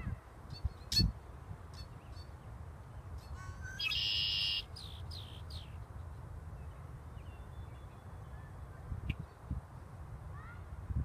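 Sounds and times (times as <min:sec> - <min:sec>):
blackbird singing buzzy trill: 0:01.8 - 0:09.5.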